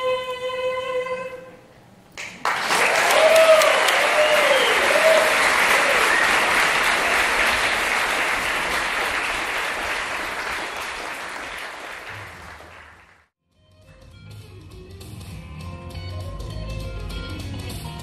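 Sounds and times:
audience applauding: 2.2 - 13.3
whoops: 2.6 - 6.5.

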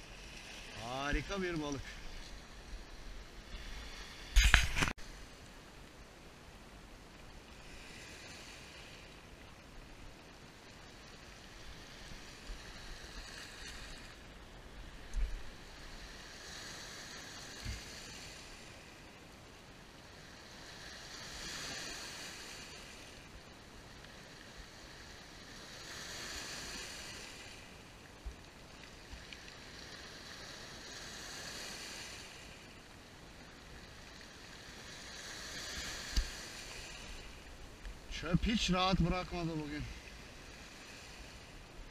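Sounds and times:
sea waves on pebble beach: 0.0 - 5.4, 7.4 - 41.9.

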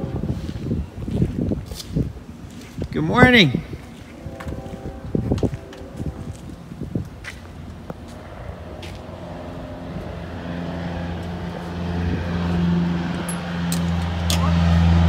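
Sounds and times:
propeller aircraft engine humming: 3.6 - 15.0.

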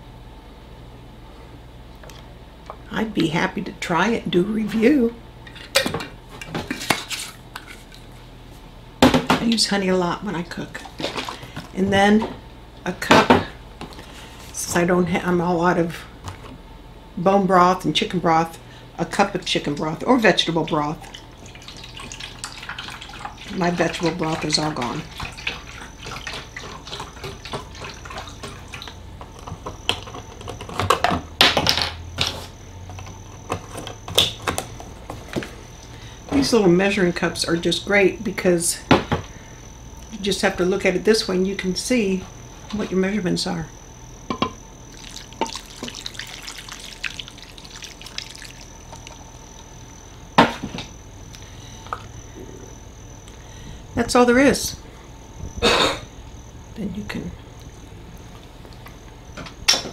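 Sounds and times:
broth gurgling as poured: 20.8 - 29.0, 44.9 - 49.3.

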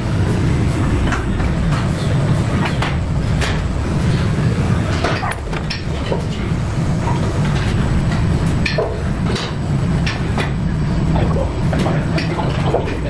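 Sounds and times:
gym equipment clanks and clicks: 4.9 - 6.4, 7.0 - 10.6, 11.7 - 13.0.

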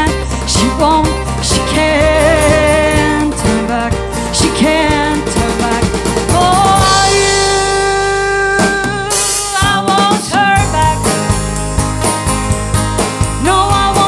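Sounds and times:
drum kit: 0.0 - 14.0
strummed acoustic guitars: 0.0 - 14.0.

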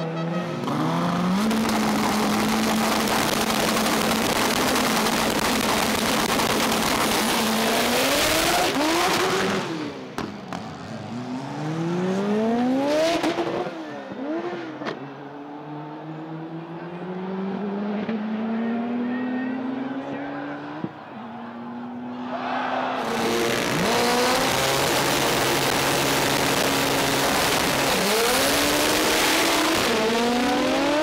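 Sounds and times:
car engines at full throttle: 0.0 - 22.1, 23.0 - 31.0.

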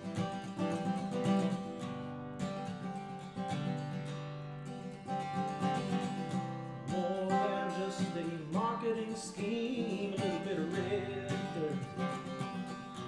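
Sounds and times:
bending guitar melody line: 0.0 - 13.0
strummed acoustic guitar: 0.0 - 13.0.

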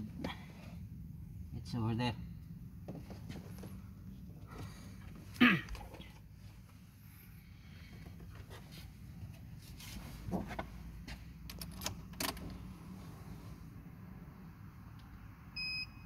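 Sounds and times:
low steady hum: 0.0 - 16.0
faint handling noises: 2.8 - 13.4.

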